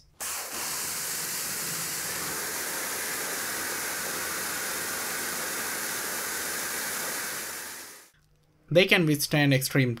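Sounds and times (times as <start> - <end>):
pressure washer jet hissing on concrete: 0.2 - 8.1.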